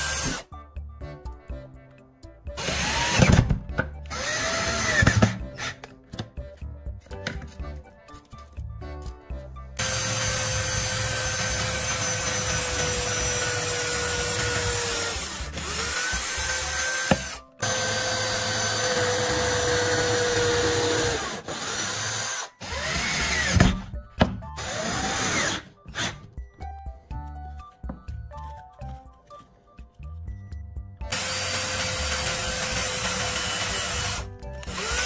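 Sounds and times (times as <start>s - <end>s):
drill driving a screw: 0.0s - 0.5s, 2.6s - 3.5s, 4.1s - 5.8s, 9.8s - 23.8s, 24.6s - 26.2s, 31.1s - 35.0s
electric drill boring: 0.0s - 0.5s, 2.6s - 3.4s, 4.1s - 5.8s, 9.8s - 23.8s, 24.6s - 26.1s, 31.1s - 35.0s.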